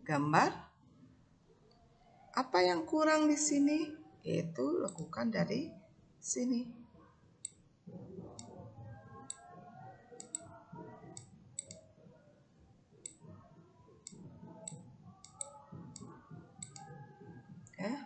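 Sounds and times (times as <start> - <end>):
faint background murmur: 1.4 - 18.0
computer mouse clicking: 4.8 - 5.1, 10.2 - 10.5, 11.1 - 11.8, 14.0 - 16.9.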